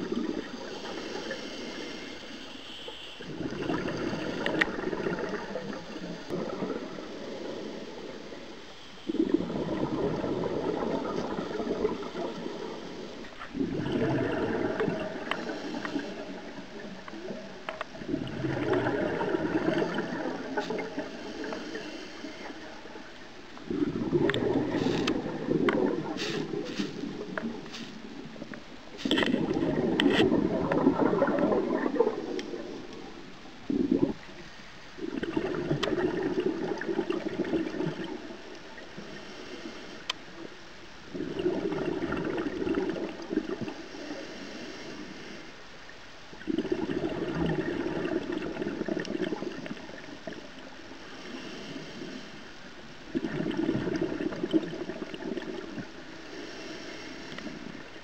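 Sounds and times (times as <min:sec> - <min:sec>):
scuba regulator exhaust bubbles: 0:00.0 - 0:02.2, 0:02.8 - 0:34.4, 0:35.0 - 0:40.2, 0:41.1 - 0:44.2, 0:46.3 - 0:58.0
diver inhaling underwater: 0:00.0 - 0:33.0, 0:43.0 - 0:45.6, 0:51.0 - 0:58.0.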